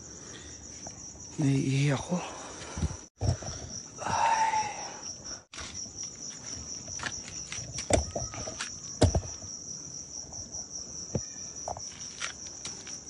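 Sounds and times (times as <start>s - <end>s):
crickets chirring: 0.0s - 13.0s
knocks and thumps: 2.8s - 3.8s, 6.9s - 9.6s.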